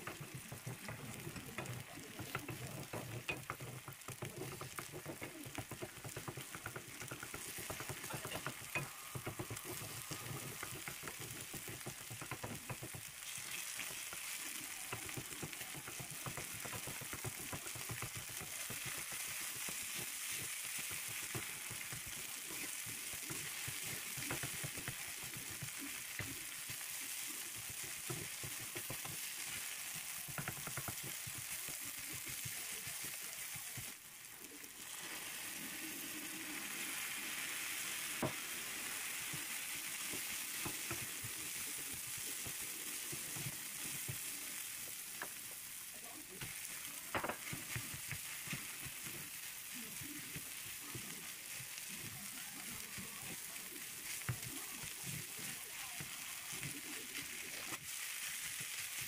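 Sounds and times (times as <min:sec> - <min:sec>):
clicks and knocks of food handling: 0:00.0 - 0:33.9, 0:46.4 - 0:53.1
food sizzling in hot oil: 0:00.0 - 0:59.0.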